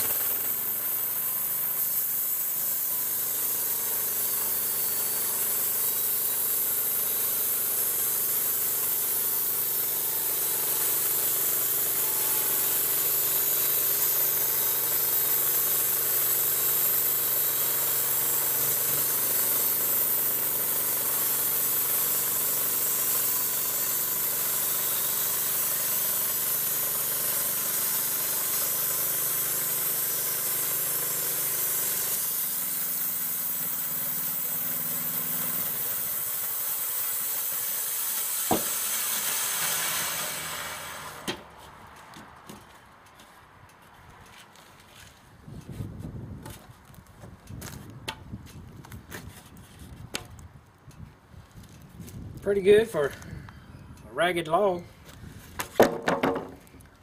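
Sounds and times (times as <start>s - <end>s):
small gas engine running: 0.0s - 41.6s
band saw blade cutting wood: 0.0s - 41.8s.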